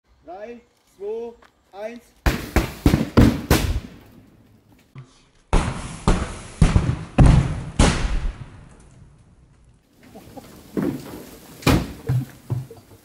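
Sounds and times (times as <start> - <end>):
pyrotechnic explosions: 5.5 - 8.7.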